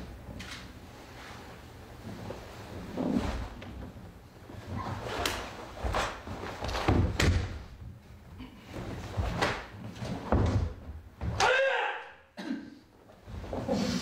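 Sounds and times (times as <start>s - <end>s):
bare feet stamping on wooden floor: 5.8s - 7.8s.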